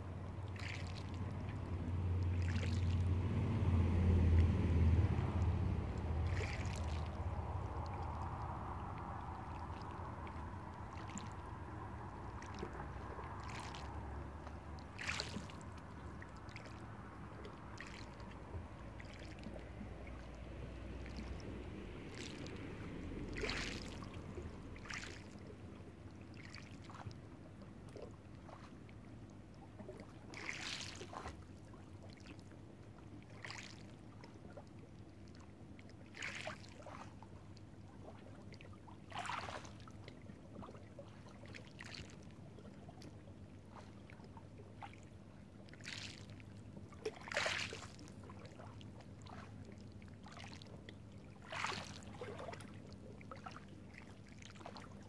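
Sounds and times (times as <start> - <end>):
passing car rumble: 0.0 - 26.2
water splashes: 0.0 - 55.0
waves lapping on pebble shore: 0.5 - 1.2, 6.2 - 8.6, 13.3 - 14.0, 15.0 - 15.6, 21.0 - 25.4, 30.3 - 31.3, 47.2 - 48.1, 51.4 - 52.3.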